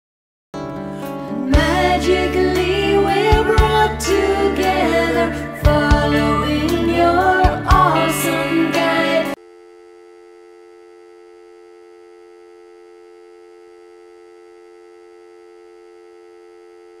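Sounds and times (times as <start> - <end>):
hold music: 0.6 - 9.4
telephone dial tone: 9.3 - 17.0.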